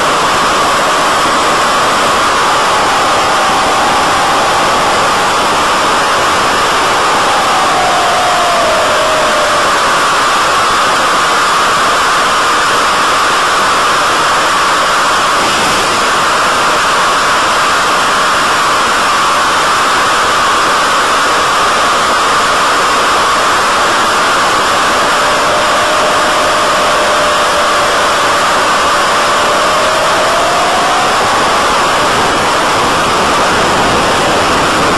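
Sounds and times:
steady rushing hiss: 0.0s - 12.0s.

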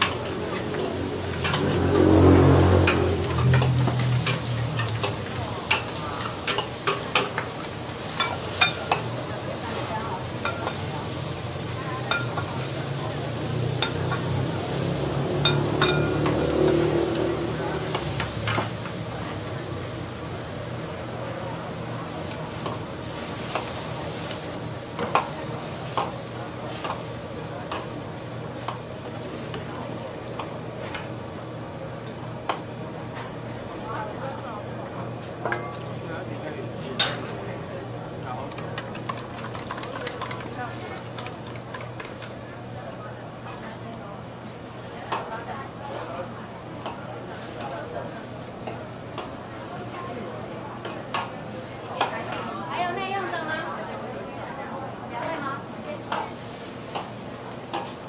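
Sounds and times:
food sizzling in wok: 0.0s - 32.5s.

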